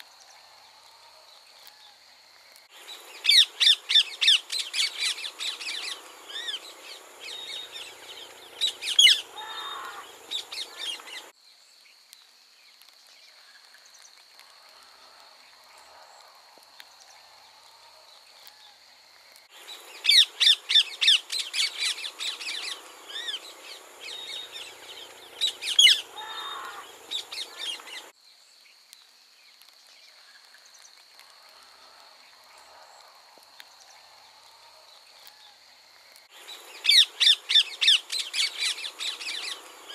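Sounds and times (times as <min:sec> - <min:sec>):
parakeets squawking: 0:08.6 - 0:11.1.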